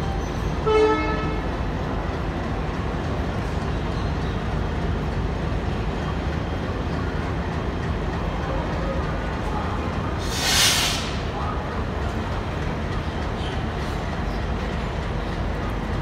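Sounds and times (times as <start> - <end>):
train wheels rumbling: 0.0 - 16.0
train horn toot: 0.6 - 1.5.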